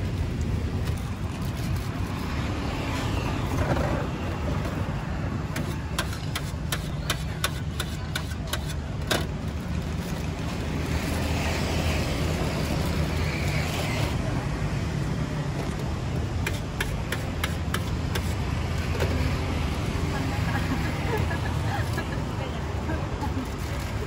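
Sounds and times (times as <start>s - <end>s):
street traffic rumble: 0.0s - 24.0s.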